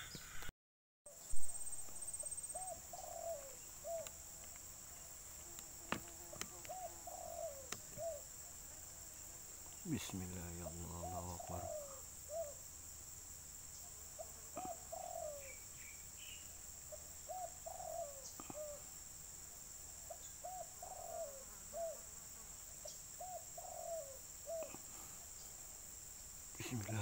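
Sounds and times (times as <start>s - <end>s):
high insect buzz: 1.1s - 27.0s
dove cooing: 2.2s - 4.2s, 6.3s - 8.3s, 10.6s - 12.6s, 14.2s - 15.6s, 16.9s - 18.9s, 20.1s - 22.0s, 23.2s - 24.9s.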